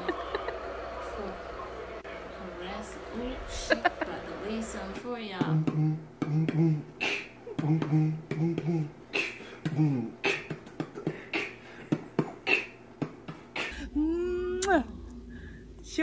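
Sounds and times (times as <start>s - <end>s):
low hummed tones: 0.0s - 16.0s
beatboxing mouth clicks and pops: 5.5s - 13.8s, 14.6s - 14.9s.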